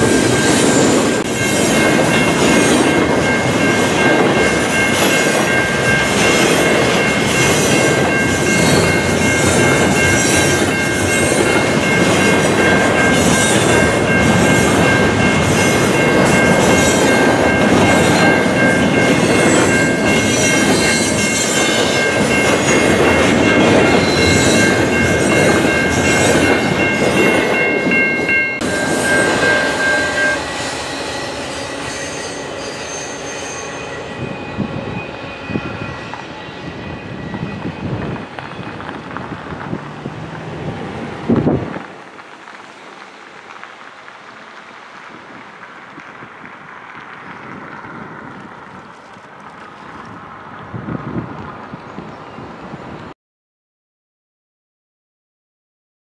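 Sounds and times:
freight train wheels rumbling: 0.0 - 53.1
high-pitched wheel squeal: 28.3 - 38.8.

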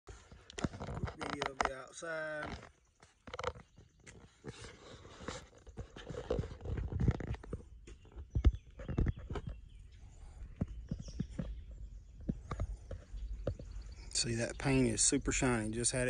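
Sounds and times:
wind rumble on microphone: 6.2 - 14.7.

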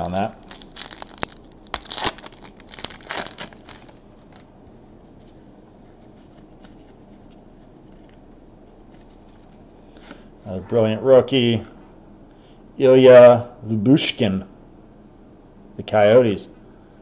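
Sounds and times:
wrapper crinkling and tearing: 0.0 - 4.5
cards rustling: 0.0 - 10.2.

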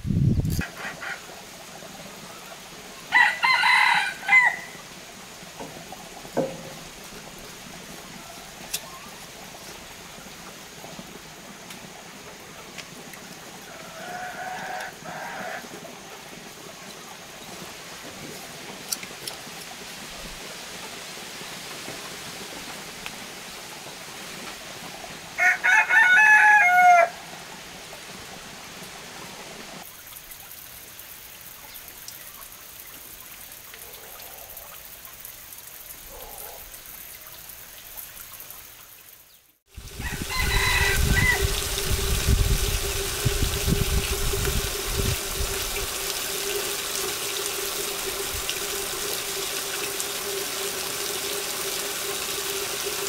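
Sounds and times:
rooster crowing: 3.1 - 4.8, 13.6 - 15.8, 25.4 - 27.2, 39.9 - 42.1.

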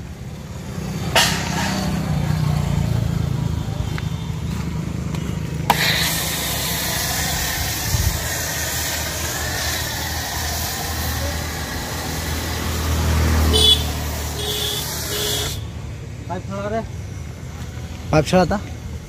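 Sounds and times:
pressure washer spray hissing: 5.7 - 15.7.

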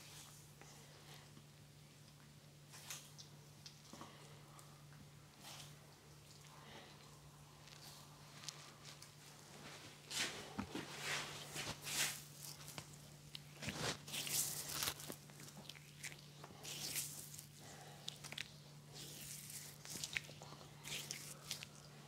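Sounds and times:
faint low hum: 0.0 - 22.0
hands rubbing skin and hair: 8.4 - 13.0.

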